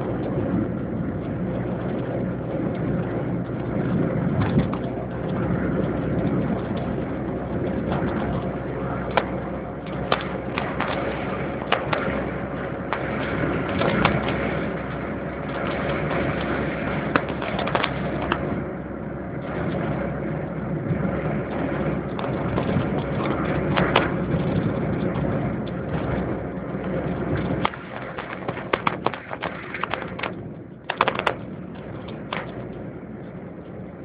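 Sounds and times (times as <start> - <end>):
car engine and tyre rumble: 0.0 - 34.0
clicks and knocks: 27.4 - 32.8.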